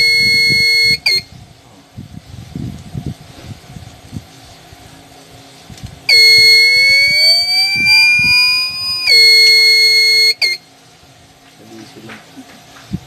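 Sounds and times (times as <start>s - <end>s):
high-pitched alarm buzzer: 0.0s - 1.2s, 6.1s - 10.6s.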